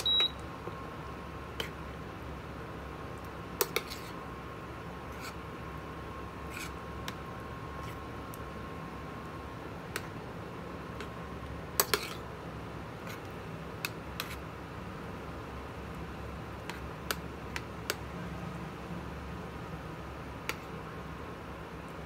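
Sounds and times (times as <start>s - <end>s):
steady low hum: 0.0s - 22.0s
metal spoon scraping frying pan: 3.6s - 4.2s, 11.8s - 12.2s.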